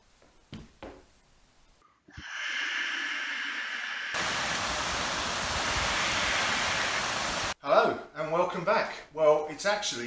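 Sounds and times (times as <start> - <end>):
steady hiss: 1.1 - 7.6
heavy rain and wind: 4.1 - 7.6.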